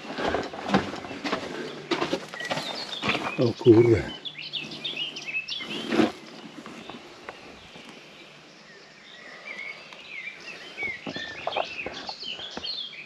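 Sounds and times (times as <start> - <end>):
footstep scuff on rubble: 0.0 - 3.5
small birds chirping: 0.0 - 13.0.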